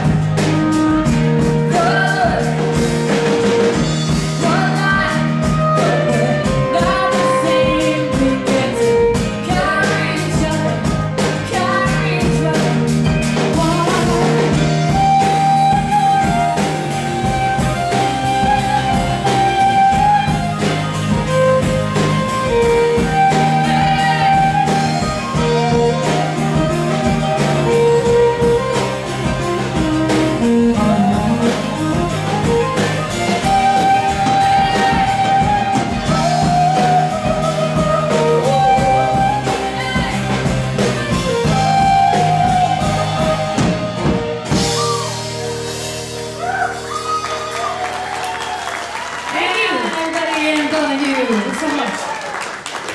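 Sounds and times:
live band playing: 0:00.0 - 0:52.9
audience clapping: 0:46.6 - 0:52.9.

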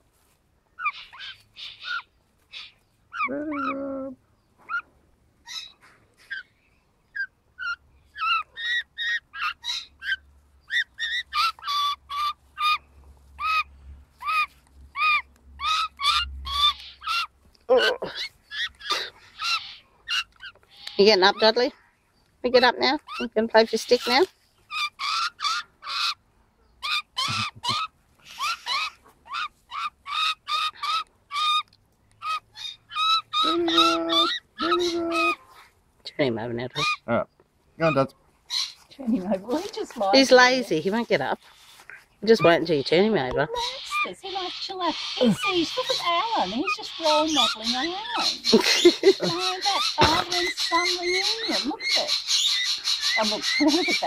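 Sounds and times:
magpie calling: 0:00.7 - 0:03.9, 0:04.6 - 0:21.8, 0:22.4 - 0:37.1, 0:37.8 - 0:54.0
magpie low long call: 0:43.6 - 0:54.0.

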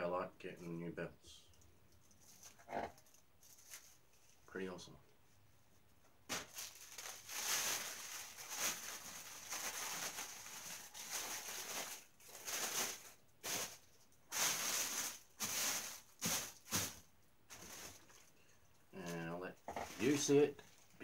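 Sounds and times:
plastic wrapping crinkling: 0:02.0 - 0:04.4, 0:06.3 - 0:18.4, 0:19.0 - 0:21.0.

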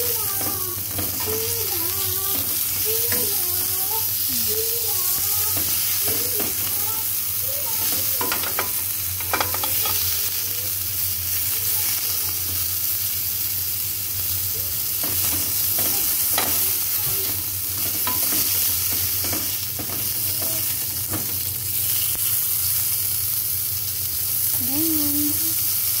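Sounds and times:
sausages sizzling in a pan: 0:00.0 - 0:26.0
metal spatula scraping a pan: 0:07.7 - 0:10.1.

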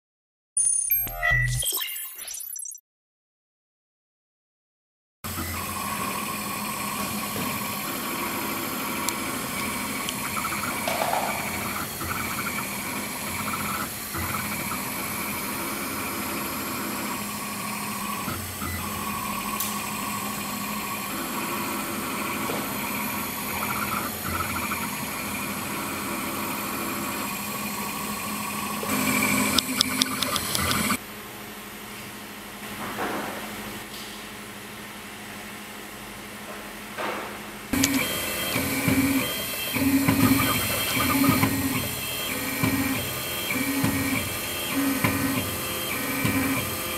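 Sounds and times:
engraving machine humming and whining: 0:05.3 - 0:31.0, 0:37.8 - 0:46.9
rapid machine ticks: 0:28.9 - 0:31.0, 0:37.8 - 0:46.9.

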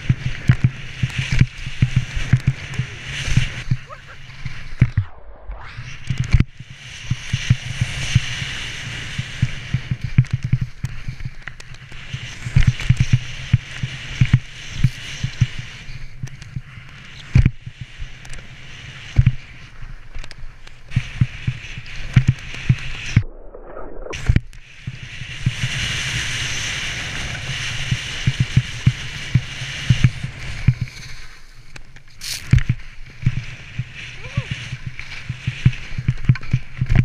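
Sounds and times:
skis knocking on bumps: 0:00.0 - 0:03.8, 0:07.2 - 0:23.2, 0:27.3 - 0:37.0
skis running through powder snow: 0:00.0 - 0:05.0, 0:05.8 - 0:23.2, 0:24.2 - 0:37.0
wind rushing over microphone: 0:00.0 - 0:37.0.

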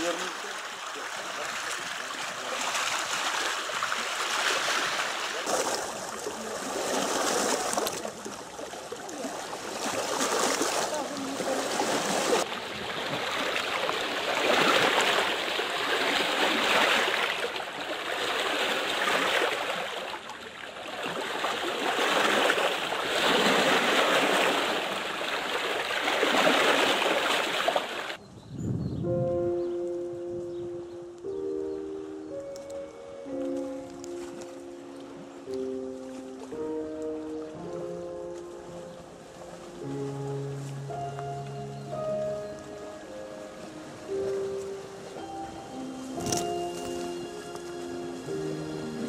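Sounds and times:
waves splashing against rocks: 0:00.0 - 0:28.2.

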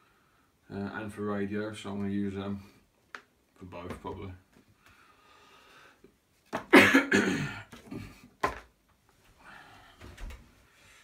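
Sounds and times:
man coughing: 0:06.7 - 0:08.1.

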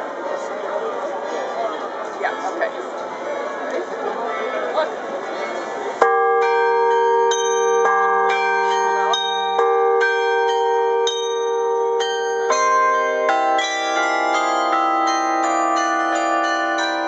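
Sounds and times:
carillon bells playing melody: 0:06.0 - 0:17.0.

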